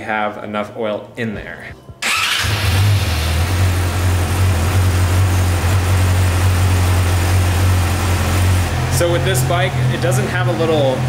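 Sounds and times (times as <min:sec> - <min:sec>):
motorcycle engine idling: 0:02.3 - 0:11.0.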